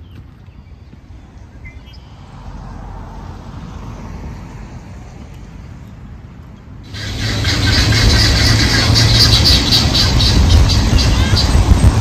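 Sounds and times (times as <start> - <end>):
outdoor rumble: 6.3 - 12.0
loud full noise: 6.9 - 12.0.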